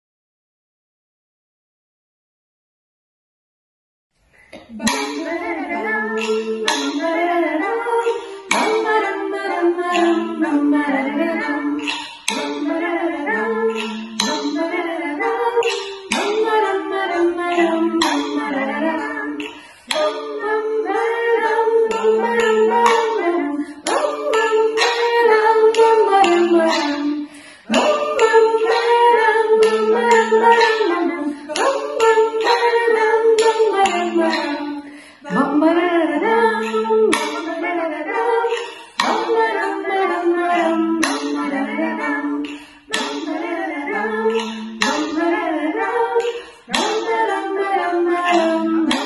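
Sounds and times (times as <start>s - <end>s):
stick tapping a small tube: 4.4s - 49.0s
women singing together: 4.4s - 49.0s.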